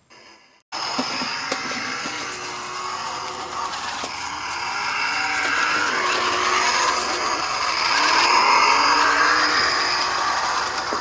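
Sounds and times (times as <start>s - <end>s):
toy truck electric motor whining: 0.2s - 11.0s.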